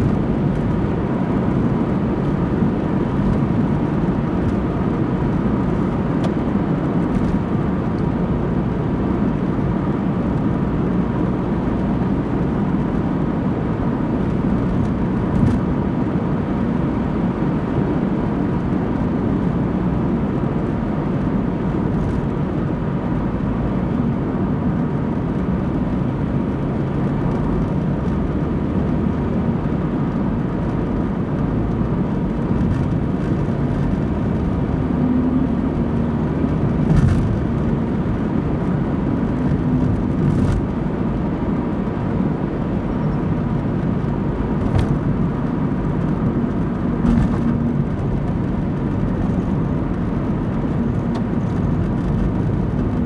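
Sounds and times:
car engine and tyre rumble: 0:00.0 - 0:53.0.

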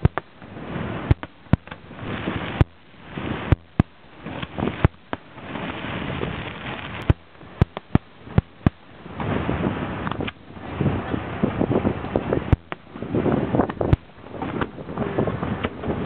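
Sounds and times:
firework shells bursting: 0:00.0 - 0:08.9, 0:12.4 - 0:14.8.

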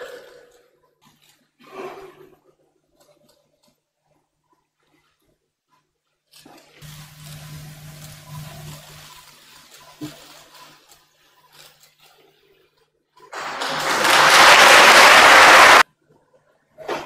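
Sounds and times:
loud rushing noise: 0:13.3 - 0:15.8.

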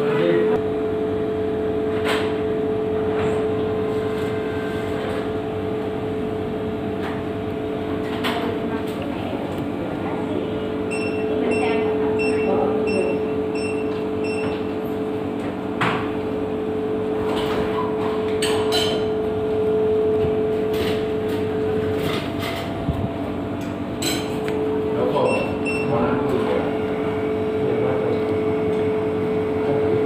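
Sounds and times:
electrical hum: 0:00.0 - 0:30.0
short electronic beeps: 0:25.2 - 0:25.9.

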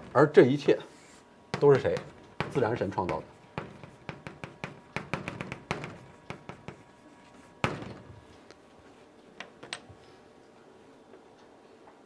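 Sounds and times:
chalk tapping on a blackboard: 0:01.1 - 0:07.9
loud knock: 0:01.6 - 0:06.8, 0:07.6 - 0:08.2.

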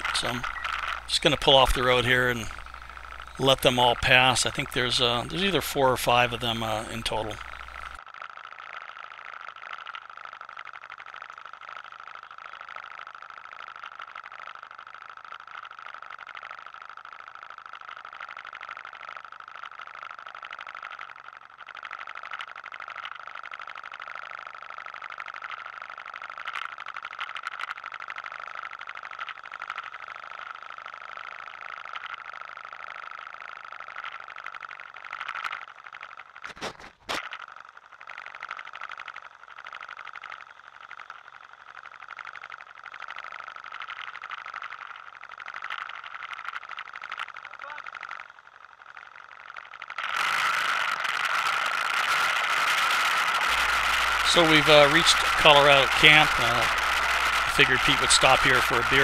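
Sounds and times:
sharp clicks: 0:00.0 - 0:08.0, 0:50.0 - 0:59.0
quad bike engine idling: 0:53.4 - 0:59.0.

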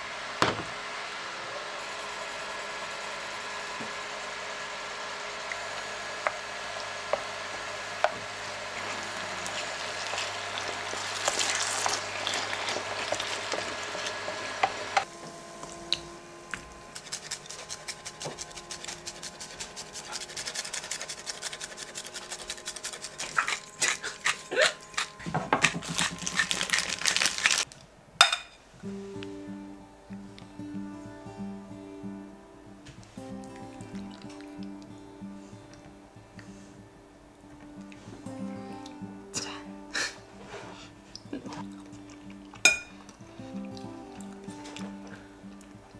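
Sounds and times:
steady hum: 0:00.0 - 0:45.9
pasta server scraping bowls: 0:05.4 - 0:15.1, 0:16.6 - 0:27.7, 0:40.3 - 0:41.0
spoon tapping frying pan: 0:28.2 - 0:28.6, 0:42.6 - 0:42.9
acoustic guitar music: 0:28.7 - 0:45.9.

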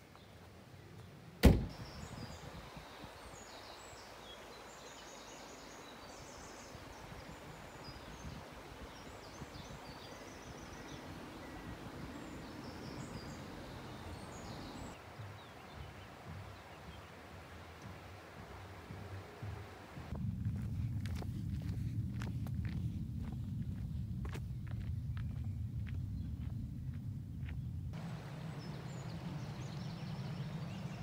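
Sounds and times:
birds chirping: 0:00.0 - 0:19.9, 0:23.6 - 0:31.0
outdoor background hiss: 0:00.0 - 0:31.0
sharp thunk: 0:01.4 - 0:01.8.

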